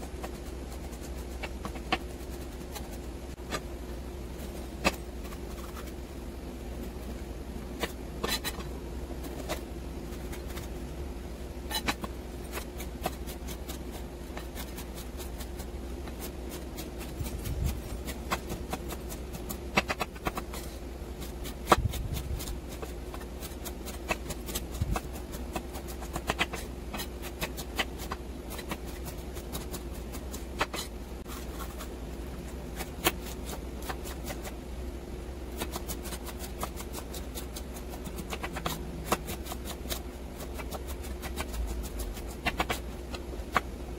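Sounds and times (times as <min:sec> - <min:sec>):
steady low hum: 0:00.0 - 0:43.9
knife chopping on wooden board: 0:11.7 - 0:29.8.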